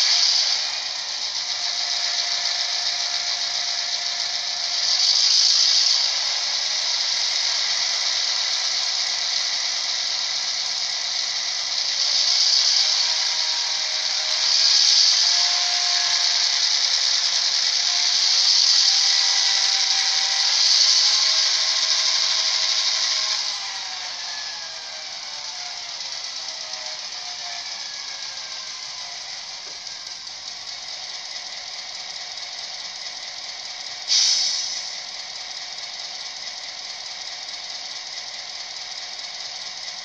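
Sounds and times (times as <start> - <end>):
faint diesel engine tones: 0.0 - 40.0.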